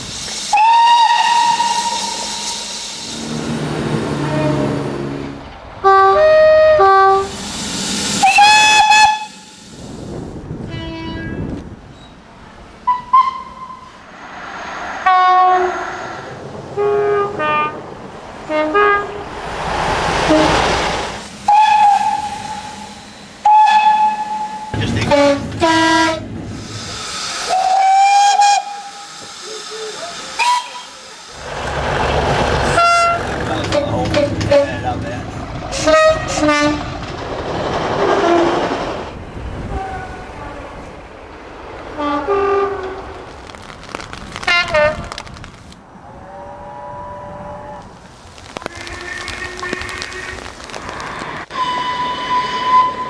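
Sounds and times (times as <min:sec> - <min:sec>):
steam hiss: 0:00.0 - 0:04.0, 0:07.2 - 0:10.4, 0:19.4 - 0:25.3, 0:26.4 - 0:32.0
passing train rumble: 0:00.0 - 0:53.0
two-tone locomotive horn: 0:00.5 - 0:02.5, 0:03.2 - 0:07.3, 0:08.2 - 0:09.5, 0:10.6 - 0:11.4, 0:16.8 - 0:17.8, 0:18.5 - 0:19.2, 0:20.2 - 0:20.8, 0:21.5 - 0:26.2, 0:30.4 - 0:30.9, 0:32.7 - 0:34.7, 0:35.8 - 0:36.8, 0:42.0 - 0:43.0, 0:46.3 - 0:47.9, 0:51.5 - 0:53.0
steam locomotive whistle blasts: 0:00.5 - 0:03.4, 0:08.2 - 0:09.6, 0:21.5 - 0:26.2, 0:27.0 - 0:31.0, 0:51.5 - 0:53.0.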